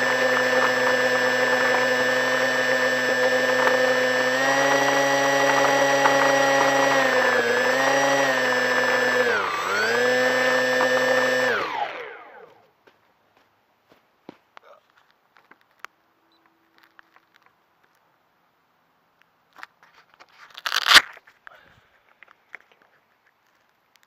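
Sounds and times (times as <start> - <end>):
model airplane motor and propeller: 0.0 - 12.6.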